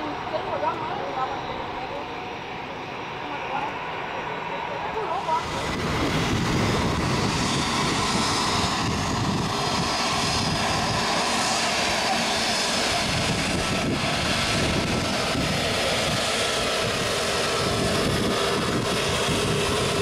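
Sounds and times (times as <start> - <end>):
jet engines running at low thrust: 0.0 - 20.0.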